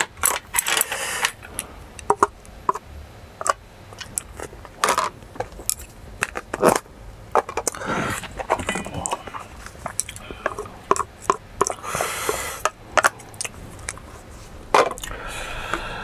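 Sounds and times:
plastic containers clicking: 2.0s - 2.8s, 3.4s - 14.1s, 14.7s - 15.9s.

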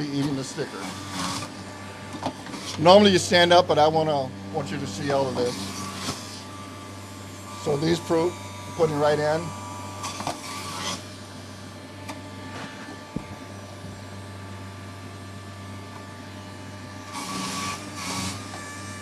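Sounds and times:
juicer rasping: 0.0s - 11.2s, 15.9s - 19.0s
juicer motor hum: 0.0s - 19.0s.

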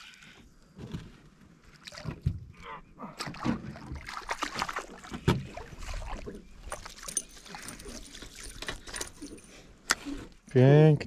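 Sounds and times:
water splashing and sloshing: 0.0s - 10.5s
sharp splash: 3.2s - 8.5s.

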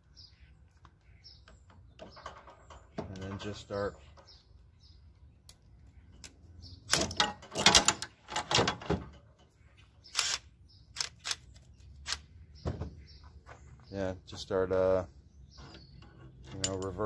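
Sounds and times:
metal clanking and rattling: 1.9s - 4.0s, 6.9s - 9.5s.

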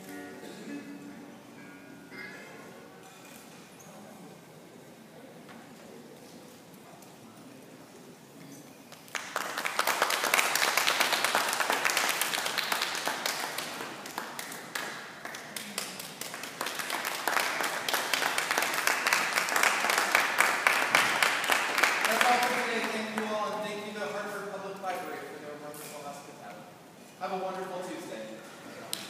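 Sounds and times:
audience applauding: 8.9s - 23.2s.

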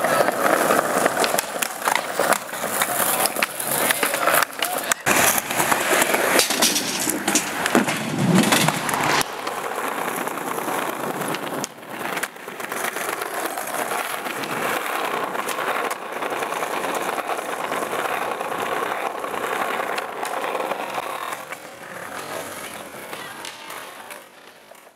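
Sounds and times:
skateboard clacks: 0.0s - 24.9s
skateboard wheels rolling: 0.0s - 24.9s.

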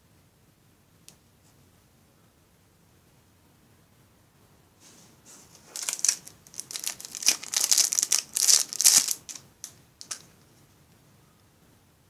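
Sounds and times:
plastic wrapping crinkling: 5.5s - 10.3s.

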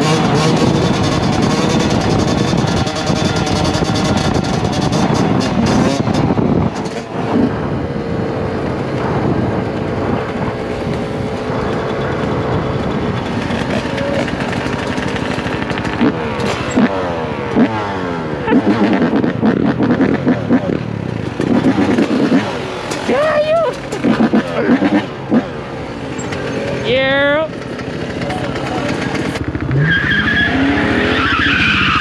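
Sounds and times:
two-stroke dirt bike engine revving: 0.0s - 31.2s.

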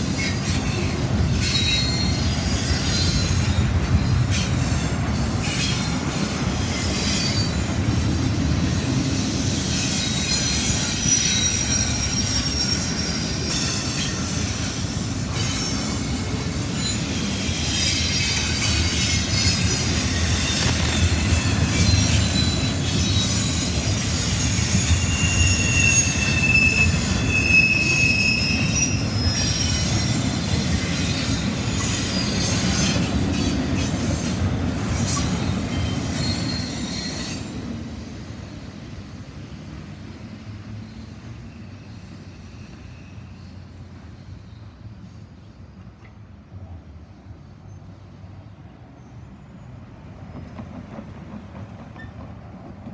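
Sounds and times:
train wheels rumbling on rail: 0.0s - 52.9s
high-pitched wheel squeal: 0.1s - 5.9s, 9.3s - 34.3s, 34.9s - 37.6s.

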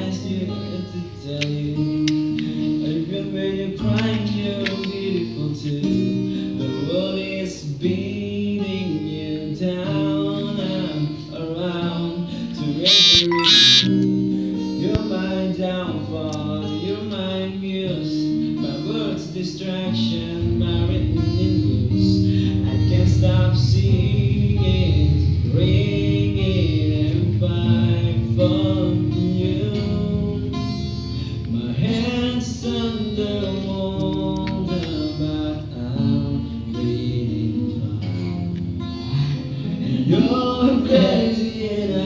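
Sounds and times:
plucked guitar: 0.0s - 42.0s
person singing: 9.8s - 14.0s.

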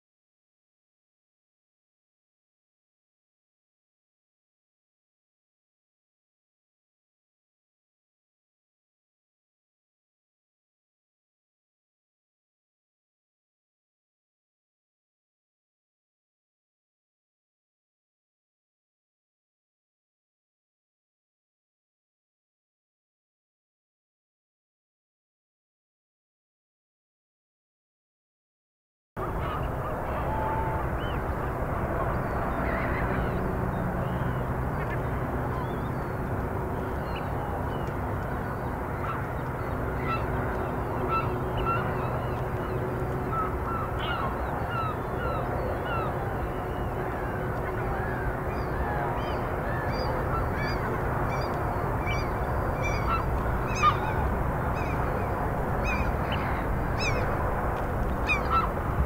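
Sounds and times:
birds calling: 29.2s - 59.0s
steady low background noise: 29.2s - 59.0s
geese honking: 41.0s - 42.2s, 49.2s - 55.2s, 55.8s - 57.4s, 58.2s - 58.8s.

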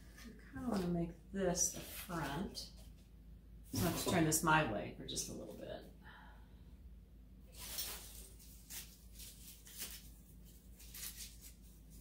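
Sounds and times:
steady low hum: 0.0s - 10.9s
rustling plastic greenery: 7.5s - 12.0s.

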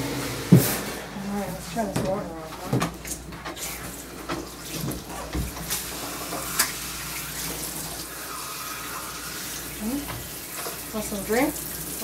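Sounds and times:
water spraying from hose: 4.6s - 12.0s.

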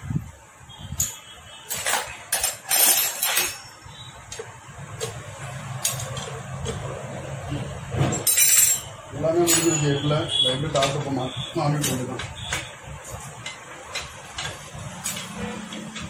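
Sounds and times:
metal tools clinking on engine: 1.0s - 3.9s, 5.8s - 6.8s, 8.1s - 12.7s, 13.4s - 16.0s.

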